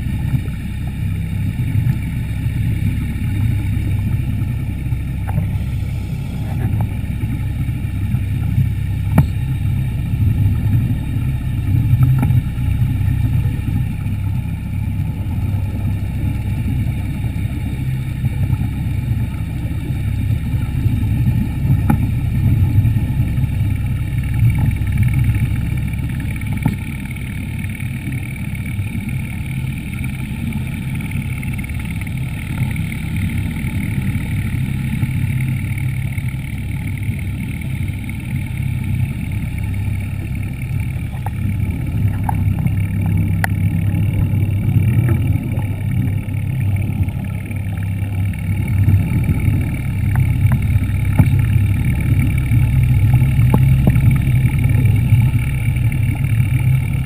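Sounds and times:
faint high whine: 0.0s - 57.0s
underwater motor drone: 0.0s - 57.0s.

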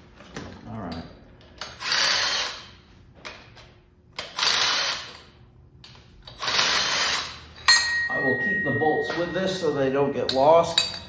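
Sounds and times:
power tool running bolts: 1.6s - 2.7s, 4.2s - 5.3s, 6.2s - 7.4s.

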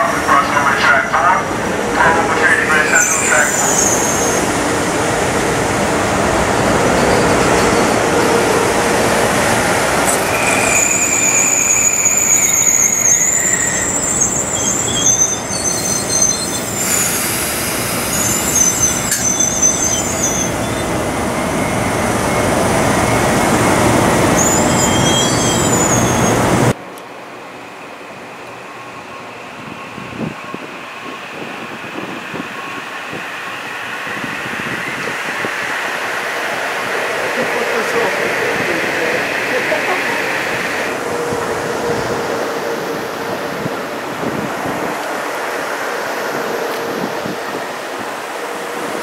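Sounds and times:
train rumbling on rails: 0.0s - 49.0s
high-pitched wheel squeals: 10.1s - 17.2s, 18.1s - 22.5s, 24.3s - 26.4s.

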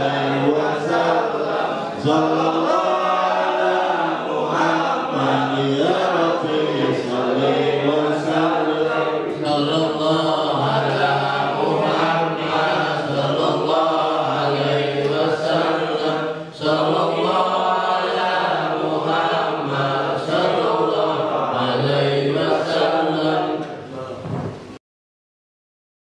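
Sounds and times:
men chanting together: 0.0s - 23.6s.

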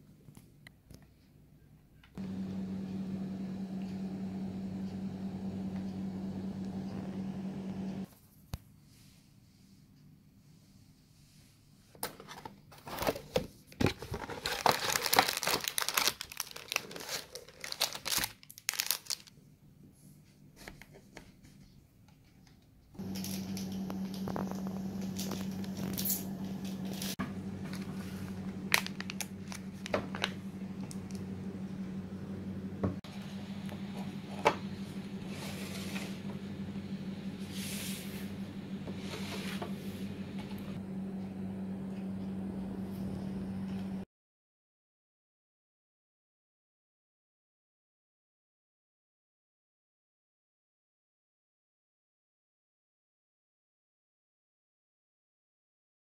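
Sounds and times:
steady low hum: 2.2s - 8.1s, 23.0s - 44.0s
plastic packaging crinkling and tearing: 12.8s - 19.3s, 24.1s - 26.2s, 26.9s - 31.2s.

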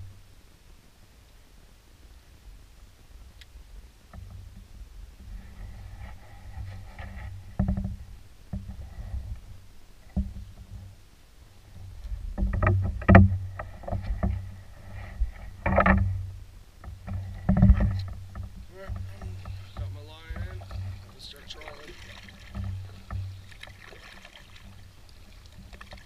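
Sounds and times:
paddle knocking against hull: 4.1s - 11.0s, 11.7s - 26.0s
paddle splashing in water: 11.7s - 26.0s.

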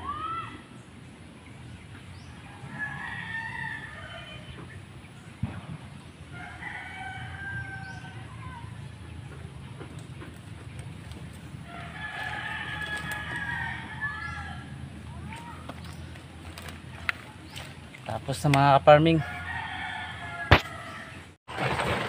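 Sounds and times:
roosters crowing: 2.2s - 4.9s, 6.3s - 17.7s, 18.3s - 21.4s
digging tool striking stony soil: 20.5s - 20.8s.

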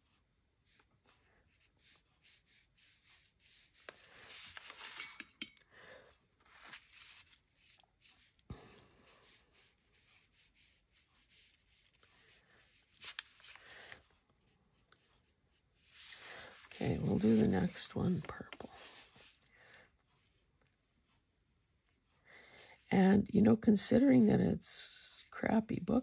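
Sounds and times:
paintbrush scratching on paper: 0.7s - 5.1s, 9.2s - 14.0s, 15.0s - 19.5s.

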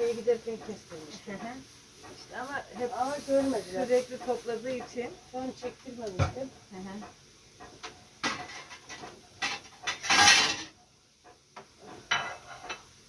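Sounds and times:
potatoes sizzling in a pan: 0.0s - 13.0s
plates and utensils clinking: 7.6s - 10.8s, 11.8s - 12.9s.

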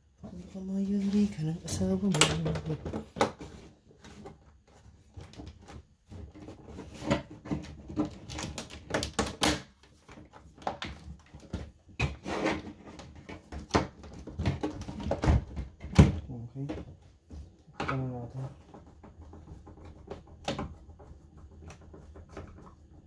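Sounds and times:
plastic cover clicks and knocks: 2.0s - 4.4s, 5.1s - 12.2s, 12.8s - 17.0s.

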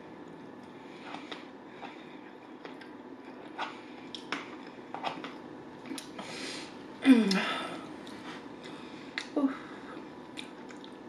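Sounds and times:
chewing and wet mouth sounds: 10.0s - 11.0s.

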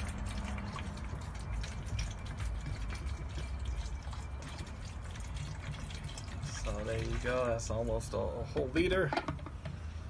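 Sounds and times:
soda pouring into plastic bottle: 0.0s - 7.8s.

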